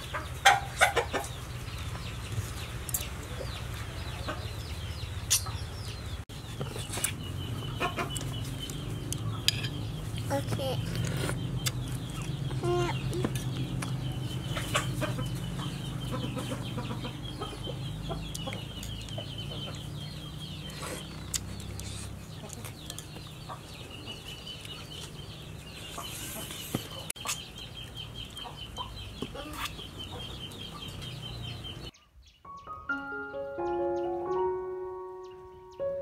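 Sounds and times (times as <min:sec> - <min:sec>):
chickens clucking: 0:00.0 - 0:32.0.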